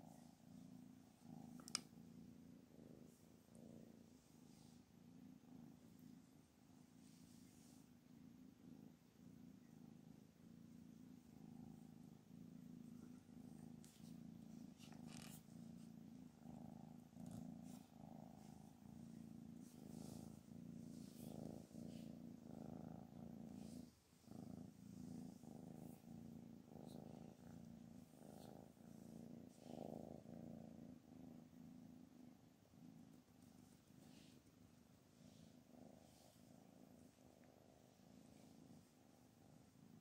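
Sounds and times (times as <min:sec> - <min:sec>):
cat purring: 0:00.0 - 0:40.0.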